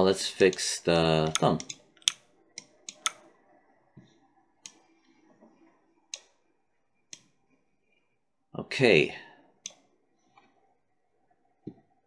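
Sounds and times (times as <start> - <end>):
mouse and keyboard clicks: 1.2 - 3.2.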